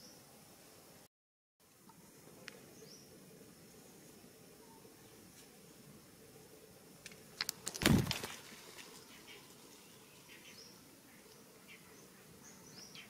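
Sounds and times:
sharp clicks: 0:07.0 - 0:08.3.

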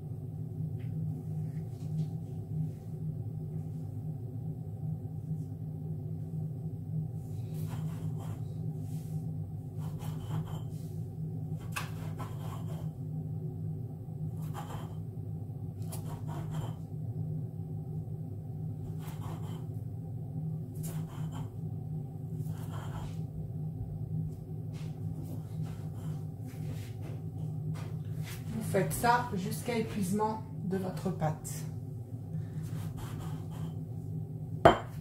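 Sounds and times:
steady low hum: 0:00.0 - 0:35.0
glass knocking on countertop: 0:34.7 - 0:35.0.

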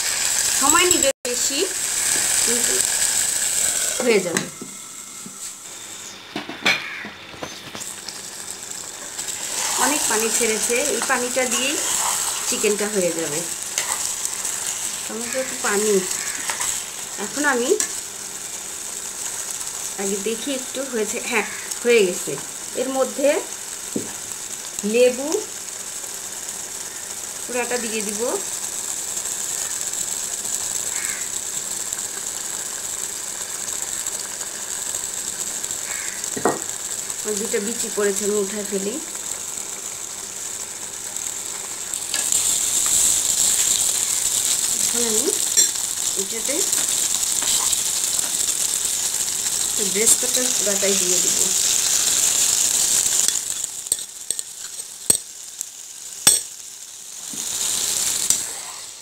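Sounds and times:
curry sizzling in a pot: 0:00.0 - 0:59.0
metal spoon clinking on pan: 0:53.2 - 0:55.3, 0:56.3 - 0:56.5.

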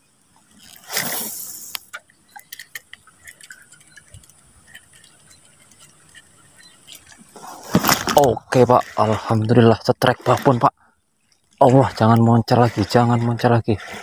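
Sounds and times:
faint irregular ticks: 0:00.3 - 0:07.4, 0:10.2 - 0:13.6.

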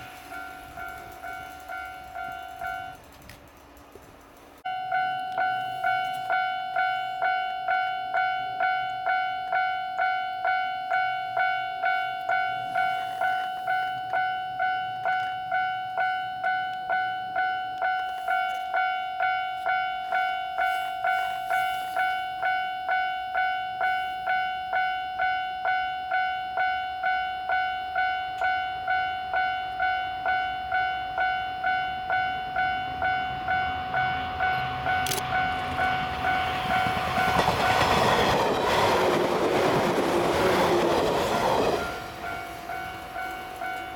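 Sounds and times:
level crossing bell ringing: 0:00.0 - 0:03.0, 0:04.7 - 0:38.4
electric train running: 0:00.0 - 0:43.9.

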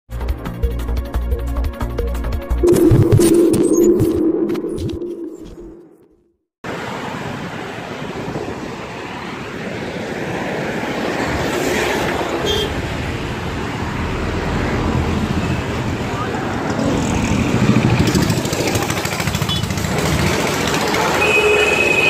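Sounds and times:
intro music: 0:00.6 - 0:06.2
street traffic noise: 0:06.7 - 0:22.0.

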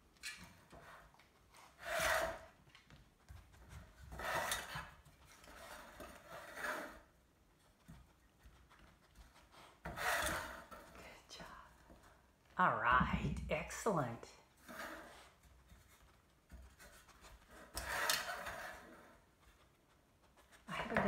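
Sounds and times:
balls scraping in metal tin: 0:01.7 - 0:02.6, 0:04.0 - 0:07.2, 0:09.8 - 0:11.0, 0:14.6 - 0:15.4, 0:17.4 - 0:19.3.

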